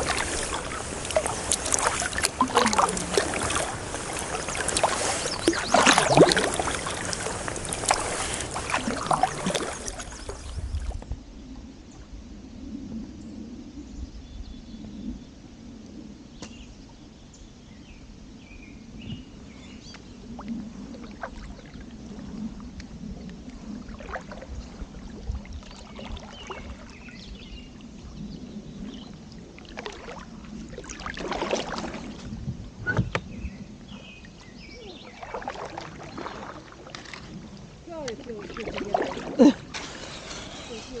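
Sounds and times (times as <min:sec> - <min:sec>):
water dripping and trickling: 0:00.0 - 0:11.0
paddle splashing in water: 0:00.0 - 0:11.1, 0:20.3 - 0:41.0.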